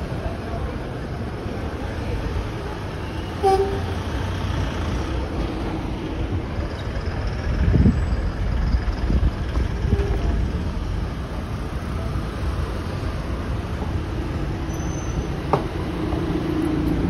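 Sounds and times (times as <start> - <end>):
street traffic rumble: 0.0 - 17.0
car horn toot: 3.4 - 4.0.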